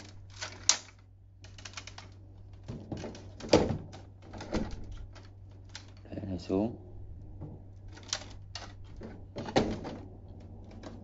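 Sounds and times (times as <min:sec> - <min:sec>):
plastic toy clicking and knocking: 0:00.0 - 0:06.0.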